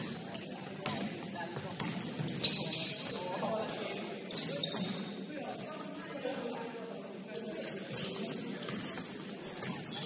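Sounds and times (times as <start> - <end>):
shoe squeaks: 2.2 - 10.0.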